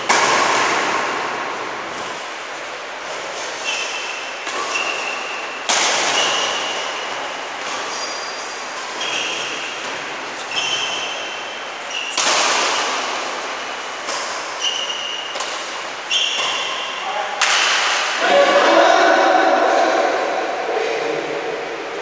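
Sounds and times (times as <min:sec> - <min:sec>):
rackets hitting shuttlecock: 0:00.0 - 0:01.6, 0:03.1 - 0:07.9, 0:08.7 - 0:18.2
sneakers squeaking on court: 0:03.0 - 0:12.3, 0:13.2 - 0:17.1.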